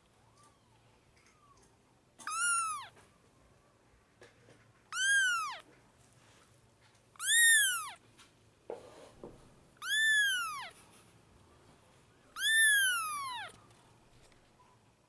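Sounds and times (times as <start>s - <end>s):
kitten meowing: 2.2s - 3.0s, 4.9s - 5.6s, 7.2s - 8.0s, 9.8s - 10.8s, 12.3s - 13.6s.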